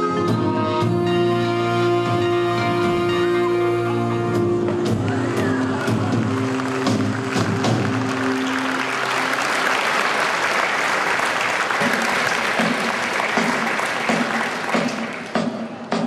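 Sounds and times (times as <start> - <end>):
audience applauding: 4.9 - 15.8.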